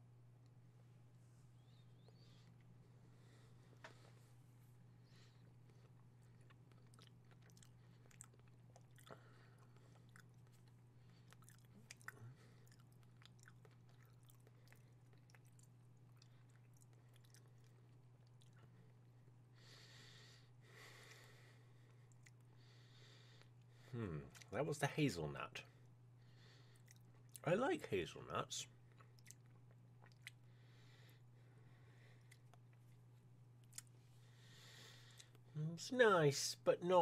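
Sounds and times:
breaths: 0:02.1 - 0:04.4, 0:05.0 - 0:06.0, 0:09.0 - 0:10.2, 0:19.5 - 0:24.0, 0:25.8 - 0:27.0, 0:30.4 - 0:32.5, 0:34.0 - 0:35.6
mouth clicks and smacks chewing: 0:05.6 - 0:18.7, 0:26.8 - 0:27.5, 0:28.9 - 0:30.5.

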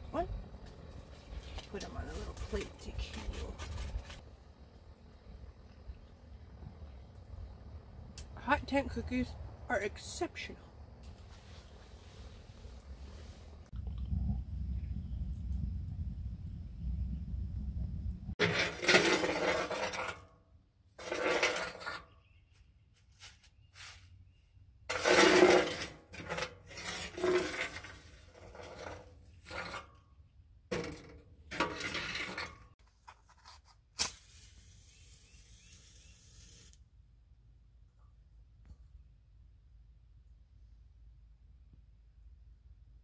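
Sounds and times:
ash scraping in metal stove: 0:18.4 - 0:20.3, 0:20.9 - 0:22.2, 0:24.9 - 0:30.0, 0:30.7 - 0:32.8.

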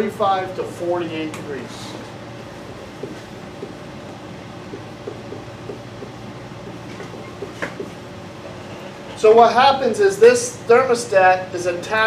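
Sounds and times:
room hum: 0:00.0 - 0:12.0
marker squeaking on whiteboard: 0:04.7 - 0:08.0.

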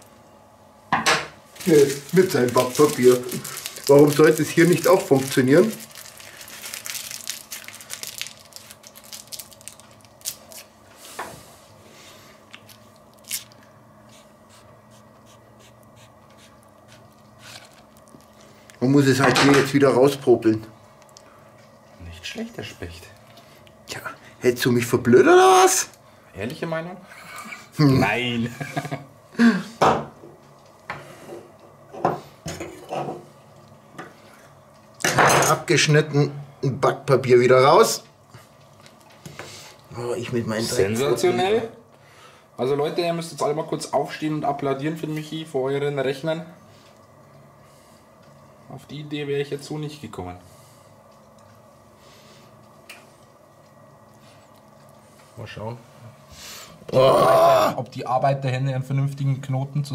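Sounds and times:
sausage meat squishing and crinkling: 0:01.5 - 0:11.0, 0:12.3 - 0:13.8, 0:15.8 - 0:19.8
small clicks and squelches: 0:21.0 - 0:21.3
knocks on wooden table: 0:29.8 - 0:30.1.

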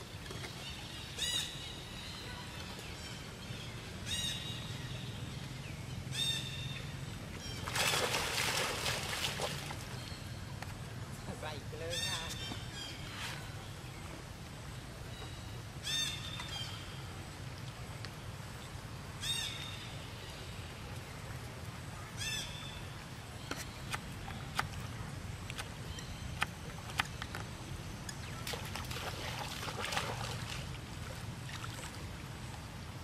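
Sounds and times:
water splashing and sloshing: 0:07.2 - 0:10.0, 0:22.8 - 0:33.0.

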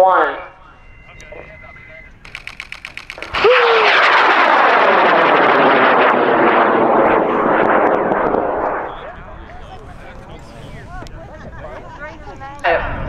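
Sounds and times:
rocket motor roaring: 0:02.1 - 0:09.2.

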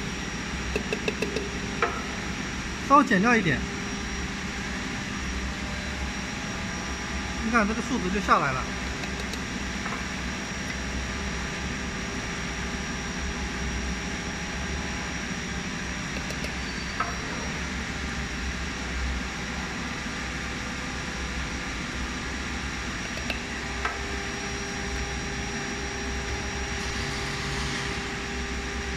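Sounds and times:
filling machine humming: 0:21.4 - 0:28.9.

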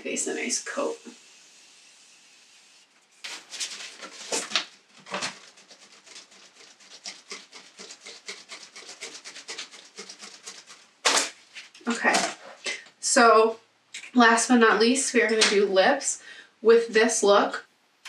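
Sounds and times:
mist spray hiss: 0:00.3 - 0:02.9
hand fan swishing: 0:03.2 - 0:12.3.

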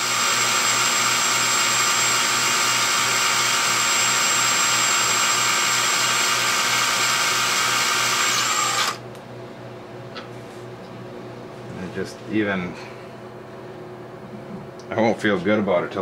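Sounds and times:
cordless drill whining: 0:00.0 - 0:09.0.

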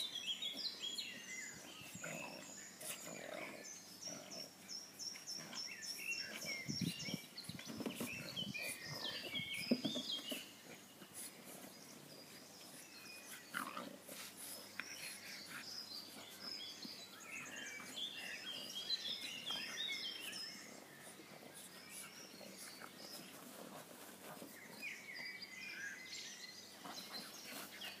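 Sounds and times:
birds chirping: 0:00.0 - 0:28.0
dogs snuffling and grunting: 0:00.0 - 0:28.0.

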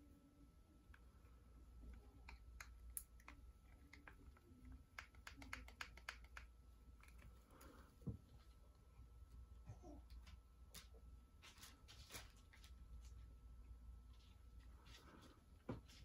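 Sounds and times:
light clicks and taps: 0:01.8 - 0:08.3.

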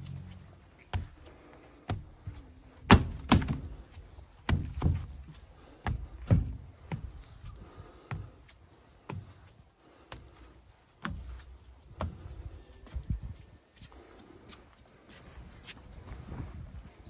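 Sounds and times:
footsteps on wooden stairs: 0:00.1 - 0:13.2.

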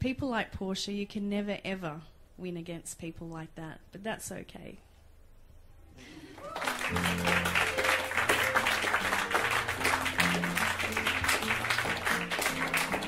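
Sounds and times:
audience applauding: 0:06.0 - 0:13.0
low music: 0:06.0 - 0:13.0.

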